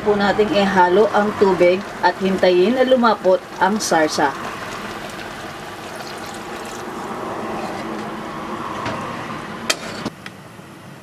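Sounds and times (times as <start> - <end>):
sauce bubbling in a pot: 0.4 - 8.8.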